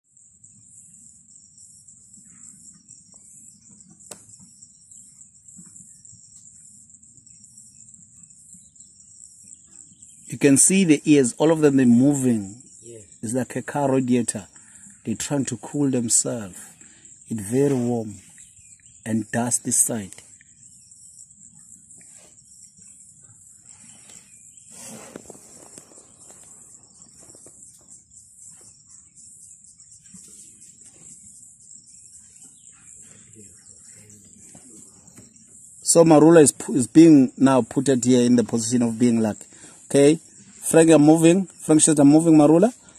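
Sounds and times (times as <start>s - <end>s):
insects trilling: 0.0s - 42.9s.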